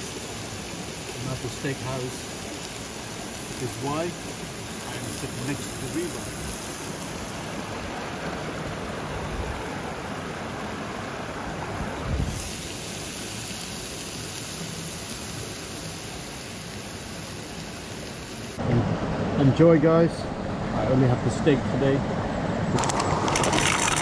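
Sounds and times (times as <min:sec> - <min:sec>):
steak frying in a pan: 0:00.0 - 0:07.7, 0:12.2 - 0:18.6
river rushing: 0:00.0 - 0:19.5.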